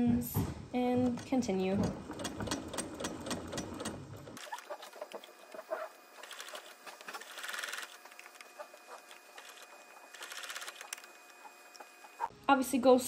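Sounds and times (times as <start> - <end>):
sewing machine stitching: 1.0 - 5.0
small clicks: 6.2 - 11.9.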